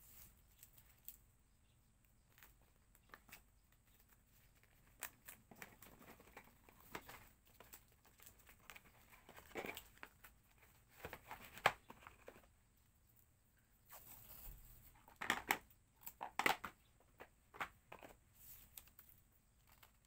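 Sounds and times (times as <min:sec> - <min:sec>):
packaging crinkling and rustling: 0:02.3 - 0:12.5.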